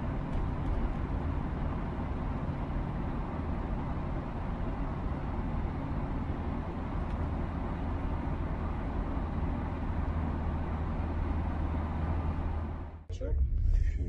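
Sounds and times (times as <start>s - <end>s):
moving train rumble: 0.0s - 14.0s.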